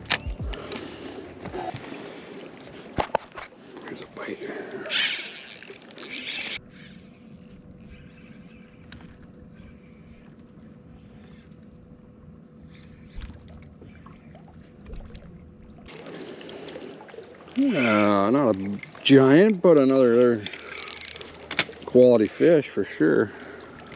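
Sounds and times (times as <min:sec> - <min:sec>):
faint steady hum: 0:00.0 - 0:23.9
faint clicks: 0:04.9 - 0:11.8.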